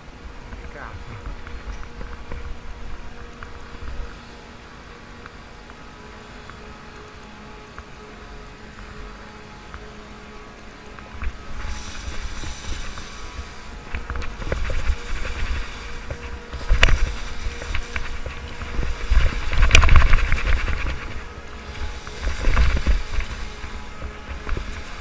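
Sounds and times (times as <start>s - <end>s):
scraping: 11.0s - 25.0s
wind buffeting microphone: 11.0s - 25.0s.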